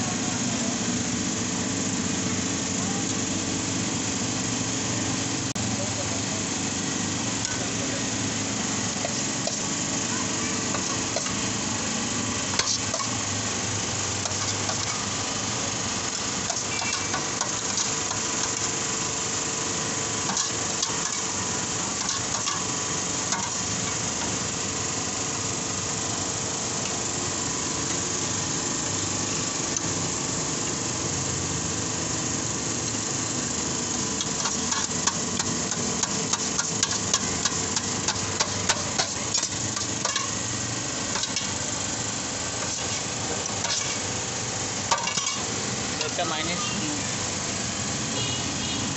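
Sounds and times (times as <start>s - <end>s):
steady hum and hiss: 0.0s - 48.9s
metal spoon scraping tray: 42.6s - 44.1s, 44.9s - 45.5s.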